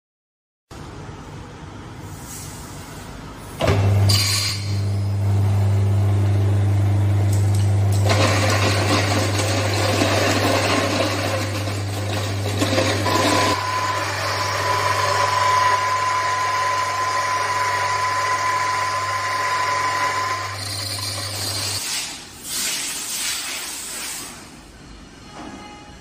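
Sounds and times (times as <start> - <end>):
milling machine hum and whir: 2.6 - 21.8
thin high whine: 13.1 - 21.8.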